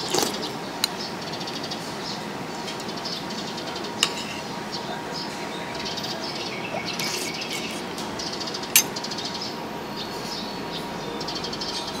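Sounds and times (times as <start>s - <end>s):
meal table ambience: 0.0s - 1.8s, 3.9s - 4.6s, 5.3s - 9.4s
sharp clink: 8.8s - 9.0s.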